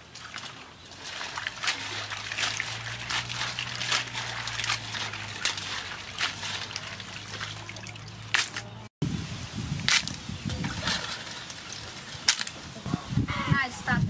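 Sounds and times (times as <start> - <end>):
water sloshing and trickling: 0.0 - 12.9.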